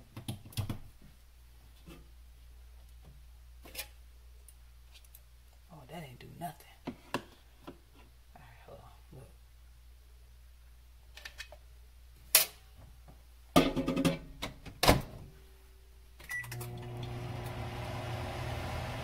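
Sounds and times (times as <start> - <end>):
microwave oven humming: 16.3 - 19.0.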